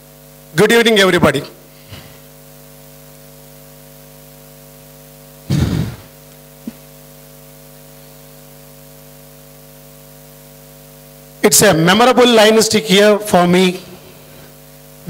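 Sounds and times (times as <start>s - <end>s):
electrical mains hum: 0.0s - 15.0s
thump into microphone: 5.5s - 6.1s.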